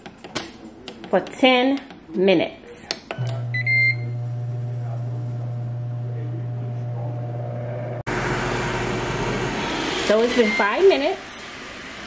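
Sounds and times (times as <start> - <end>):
air fryer fan humming: 3.2 - 12.0.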